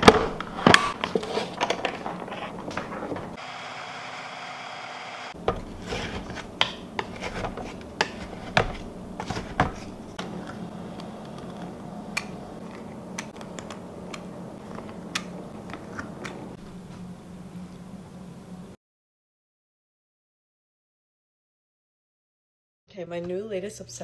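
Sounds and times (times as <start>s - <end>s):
faint steady hum: 0.3s - 18.8s
utensils knocking on bowl and sheet: 5.4s - 10.3s.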